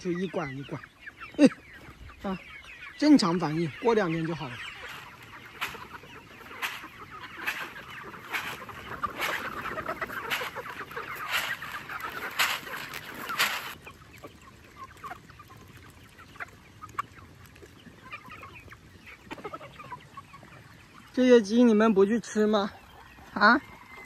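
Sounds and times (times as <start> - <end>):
chickens clucking: 0.0 - 24.0
chickens pecking ticks: 0.0 - 24.0
corn thrown from bucket swish: 4.8 - 13.8.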